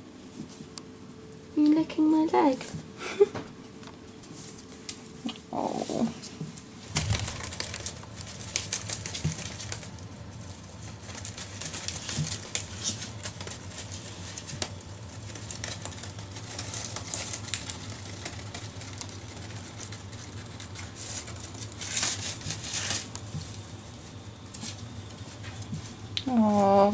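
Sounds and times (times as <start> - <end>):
paper and cardboard crinkling: 5.6 - 26.9
rabbits gnawing clicks: 6.5 - 26.6.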